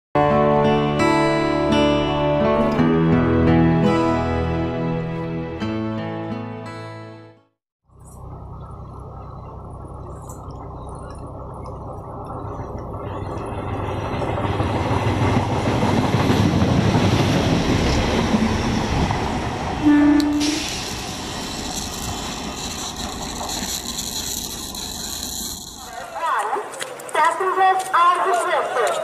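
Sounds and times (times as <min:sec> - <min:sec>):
train rumbling past: 0:08.2 - 0:26.2
train horn blast: 0:19.8 - 0:20.8.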